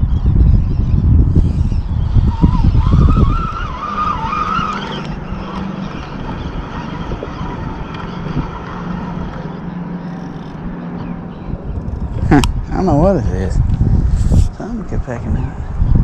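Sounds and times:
wavering high squeal: 0.0 - 12.0
wind noise: 0.0 - 16.0
vehicle engine hum: 1.0 - 16.0.

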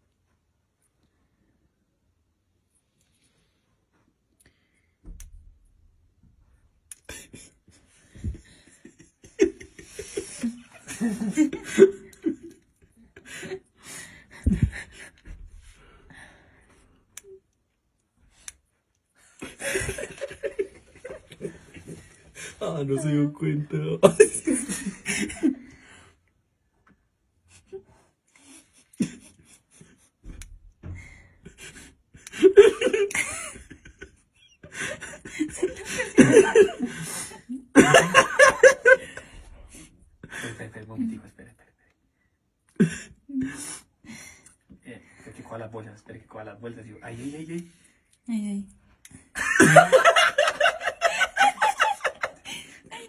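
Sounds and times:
people laughing: 7.1 - 13.7, 19.4 - 23.3, 24.0 - 25.7, 31.5 - 41.1, 49.4 - 53.0
stifled laughter: 31.5 - 39.3, 49.4 - 53.0.

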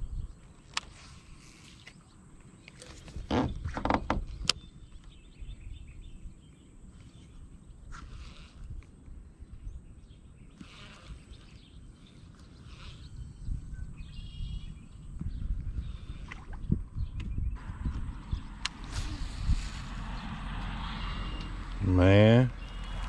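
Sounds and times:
steady low rumble: 16.9 - 23.0.

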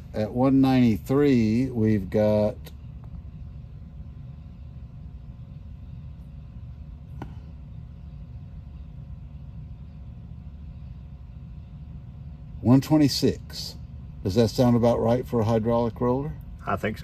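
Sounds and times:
low background rumble: 0.0 - 17.0.

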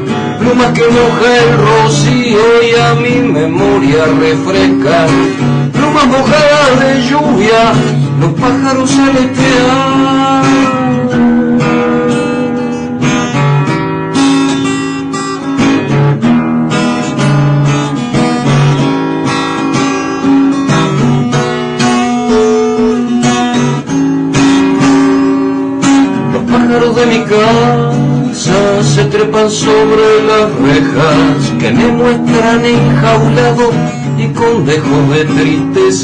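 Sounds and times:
man singing: 0.0 - 13.4, 24.8 - 36.0
acoustic guitar strumming: 0.0 - 36.0.

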